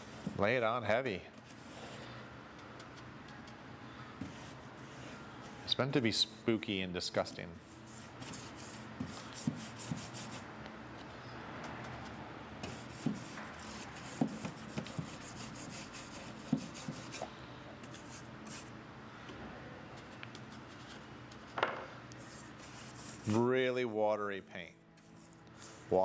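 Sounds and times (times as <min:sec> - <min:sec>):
paintbrush rubbing on wall: 0:04.2 - 0:05.7, 0:07.7 - 0:10.4, 0:12.7 - 0:17.3, 0:22.2 - 0:23.4, 0:25.0 - 0:26.0
brush tapping surface: 0:12.6 - 0:17.2.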